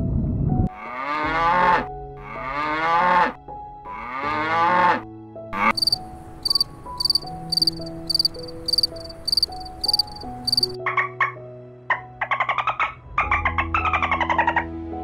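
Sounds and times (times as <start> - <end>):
cow mooing: 0.8 - 5.0
crickets chirping: 5.6 - 10.8.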